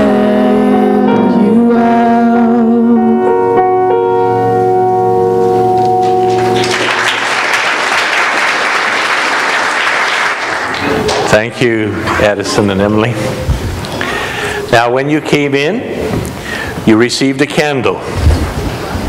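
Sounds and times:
acoustic guitar: 0.0 - 6.8
piano: 0.0 - 14.9
audience applause: 6.0 - 12.1.

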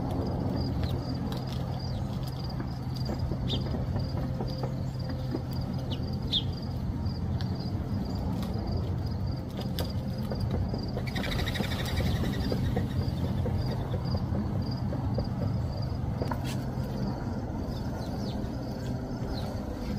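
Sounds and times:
steady low hum: 0.0 - 19.9
small birds chirping: 0.5 - 8.5, 10.8 - 19.9.

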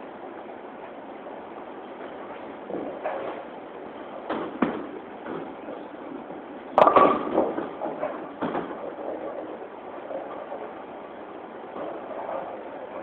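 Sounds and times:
bowling alley rumble: 1.3 - 13.0
bowling ball crashing into pins: 6.8 - 10.7.

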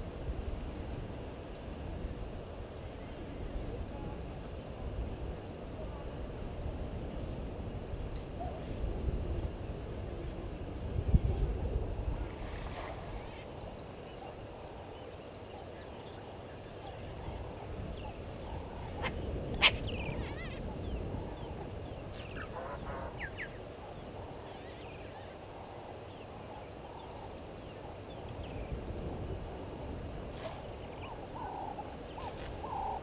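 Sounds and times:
steady outdoor hiss: 0.0 - 33.0
birds chirping and warbling: 12.0 - 28.9, 30.4 - 33.0.

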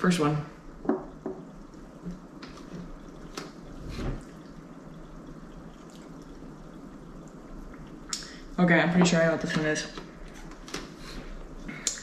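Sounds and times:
liquid slurping through a straw: 1.7 - 8.4.

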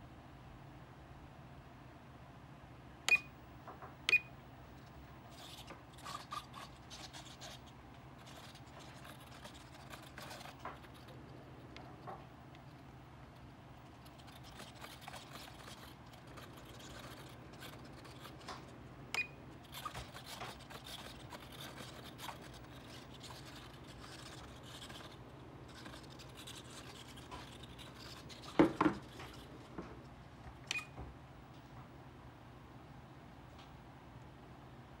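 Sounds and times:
foam and plastic rubbing: 19.7 - 29.8.

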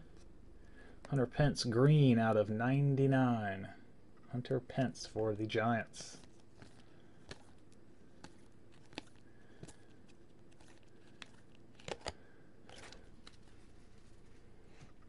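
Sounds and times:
cards clicking: 6.1 - 13.8
cards snapping: 6.1 - 13.8.

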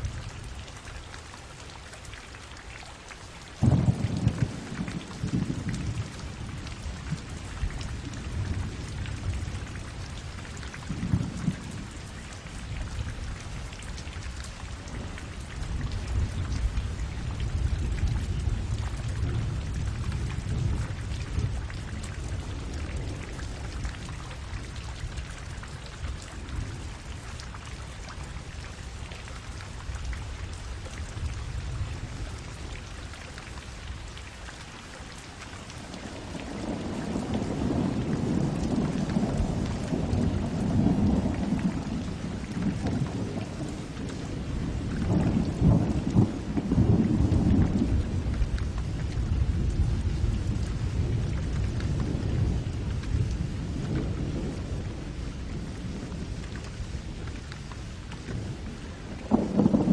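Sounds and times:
steady rain falling: 0.0 - 59.9
thunder rumbling: 3.6 - 12.0, 36.2 - 57.0, 58.3 - 59.9.

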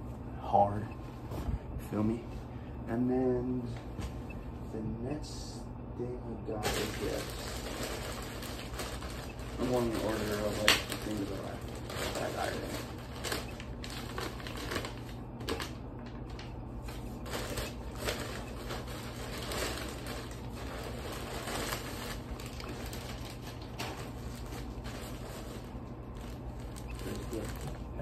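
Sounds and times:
plastic bag and paper rustling: 6.4 - 28.0.

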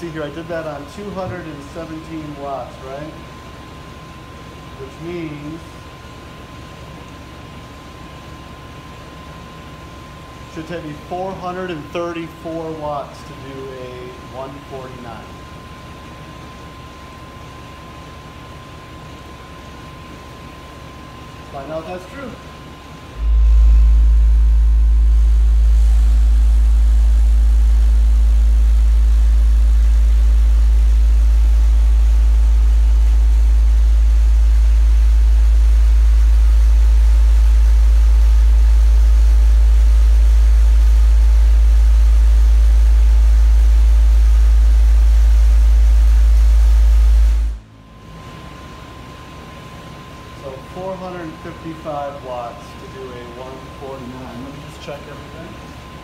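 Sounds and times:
loud low bass tone: 0.0 - 3.4, 22.3 - 48.0.

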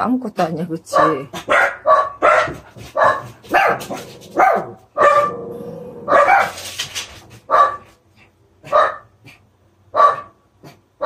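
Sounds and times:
dogs barking: 0.9 - 6.6, 7.5 - 8.0, 8.6 - 10.9.

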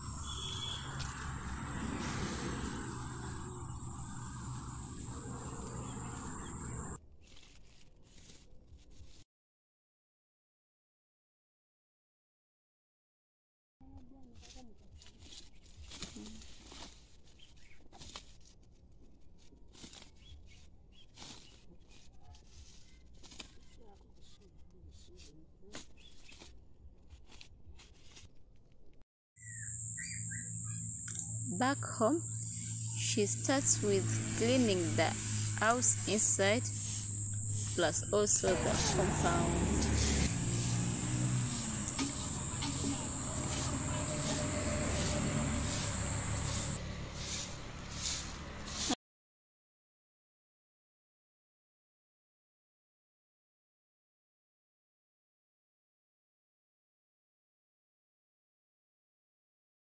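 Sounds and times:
bird chirps: 0.0 - 2.0, 3.3 - 7.0, 29.4 - 31.6, 32.2 - 34.0
high insect drone: 0.0 - 7.0, 29.4 - 48.3
low hum: 0.0 - 7.0, 29.6 - 48.6
low rumble: 0.0 - 7.0, 32.2 - 48.7
dry leaves crackling: 0.0 - 9.2, 14.3 - 28.4, 32.4 - 48.9.

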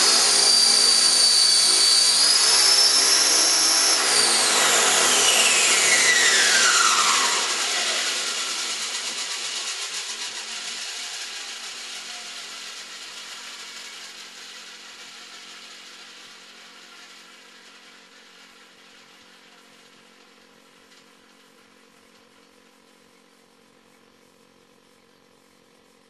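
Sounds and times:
helicopter rotor spooling down: 0.0 - 19.2.

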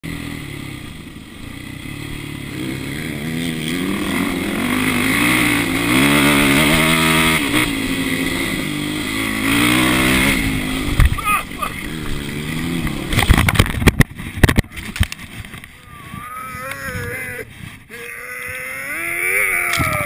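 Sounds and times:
dirt bike engine revving: 0.0 - 20.0
wind rush on microphone: 13.2 - 17.9.

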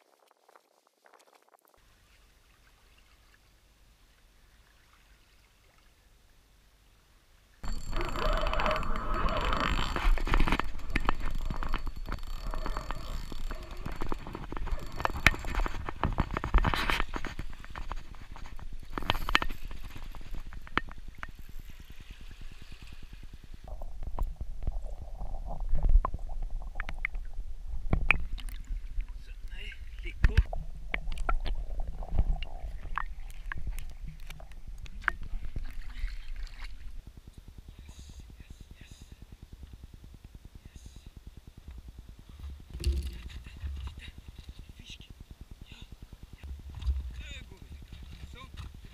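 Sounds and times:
knocks and scrapes: 7.6 - 21.0, 42.3 - 44.6, 46.4 - 48.9
wind rumbling on microphone: 7.7 - 48.9.

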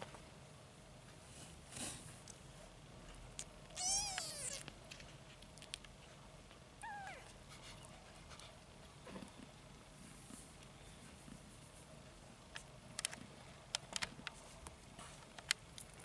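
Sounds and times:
kitten mewing: 3.7 - 4.7, 6.8 - 7.4.

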